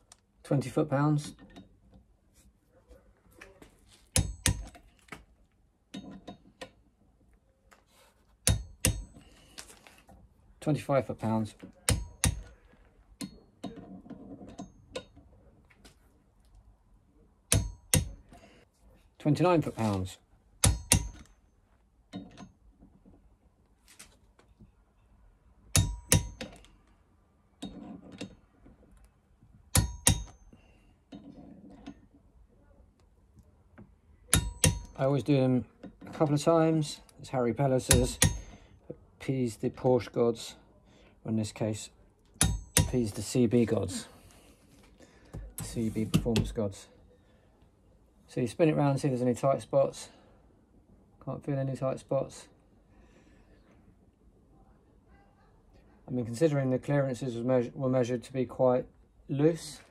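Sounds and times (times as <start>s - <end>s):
wrench scuffing: 45.3s - 46.5s.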